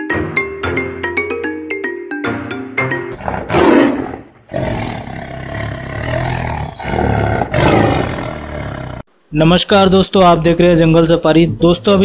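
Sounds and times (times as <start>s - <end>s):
tiger roaring: 3.1s - 9.1s.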